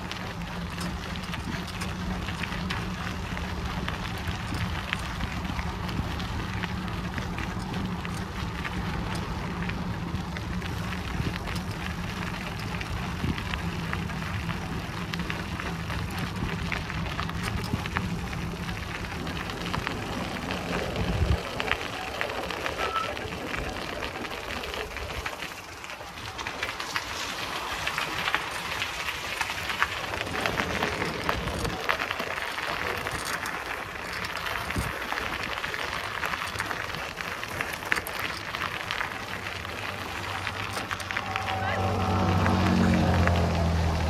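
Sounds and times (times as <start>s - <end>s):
steady low rumble: 0.0s - 22.6s
bicycle tyres crackling on path: 0.0s - 44.0s.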